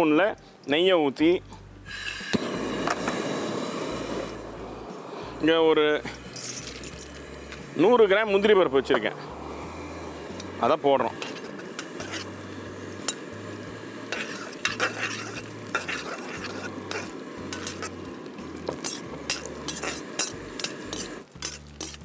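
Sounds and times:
nuts sizzling in ghee: 0:01.9 - 0:22.0
ladle scraping and tapping pan: 0:11.2 - 0:12.4, 0:14.1 - 0:18.0, 0:18.7 - 0:22.0.

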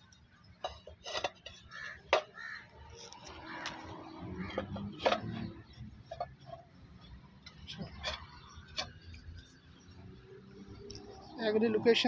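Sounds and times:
roof tiles knocking and scraping: 0:00.6 - 0:02.6, 0:03.2 - 0:09.5.

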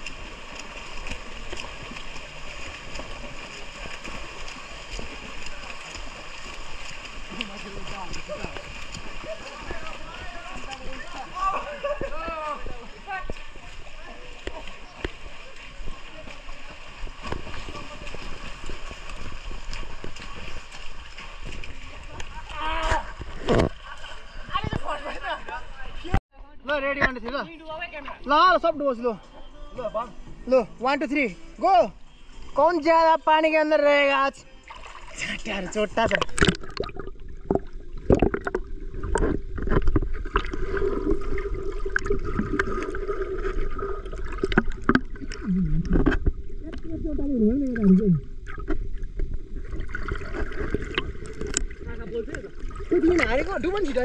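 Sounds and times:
pool water splashing: 0:00.0 - 0:26.2, 0:27.4 - 0:54.0
small splashes and knocks: 0:00.0 - 0:26.2, 0:36.0 - 0:46.9, 0:47.5 - 0:54.0
underwater bubbling: 0:35.9 - 0:54.0
sharp underwater clicks: 0:36.0 - 0:40.6, 0:50.3 - 0:52.4
underwater water rumble: 0:36.1 - 0:54.0.

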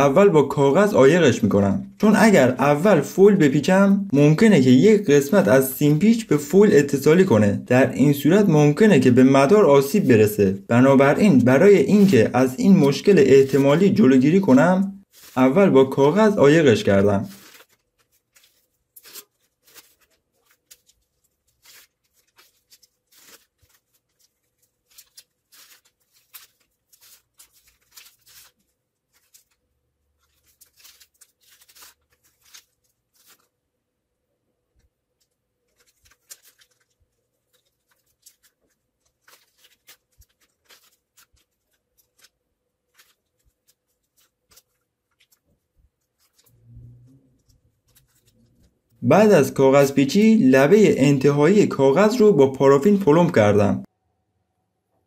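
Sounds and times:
paper crinkling and rustling: 0:09.0 - 0:33.7, 0:34.7 - 0:53.4.

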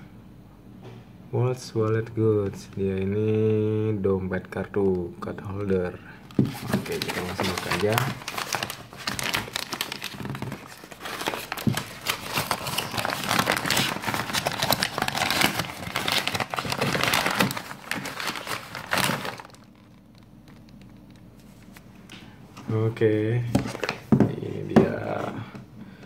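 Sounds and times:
plastic mailer crinkling: 0:06.2 - 0:21.9.

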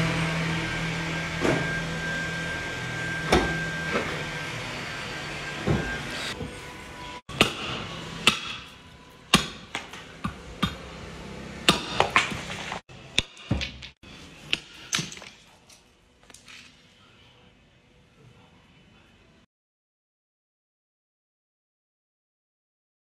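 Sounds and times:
cleaver chopping bone on wood: 0:07.4 - 0:08.6.

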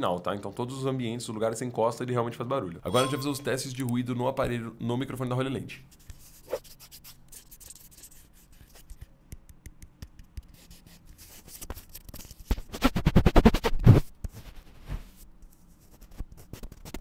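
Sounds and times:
fingers rubbing microphone: 0:12.6 - 0:15.1.

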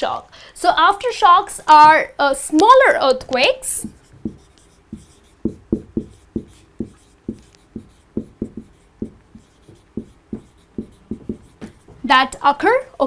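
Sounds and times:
marker squeaking on whiteboard: 0:03.3 - 0:12.2.

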